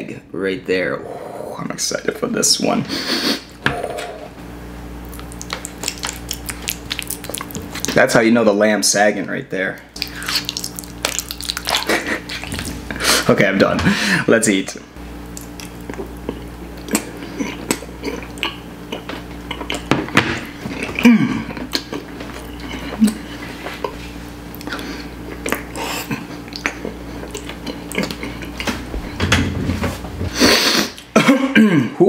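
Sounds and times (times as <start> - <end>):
steady low hum: 0.0 - 32.0
person chewing: 5.0 - 8.0, 9.9 - 13.3, 15.2 - 28.9.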